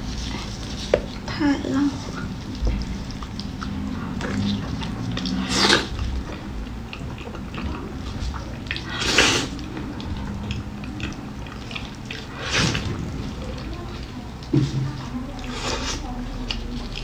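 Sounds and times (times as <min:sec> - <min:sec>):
wet chewing and sucking: 0:00.0 - 0:17.0
lip smacks: 0:02.1 - 0:14.5.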